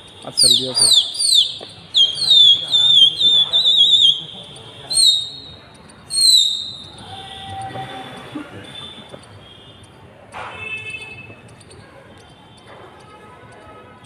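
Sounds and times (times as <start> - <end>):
shrill whistles falling in pitch: 0.4 - 7.7.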